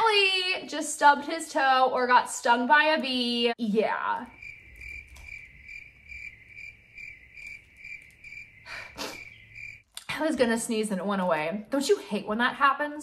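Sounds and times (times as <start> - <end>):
cricket chirping: 4.2 - 9.8.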